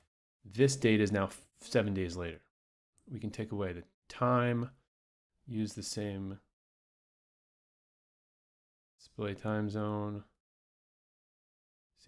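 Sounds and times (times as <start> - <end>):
man speaking: 0.5 - 2.5, 3.1 - 4.9, 5.5 - 6.5, 9.0 - 10.4.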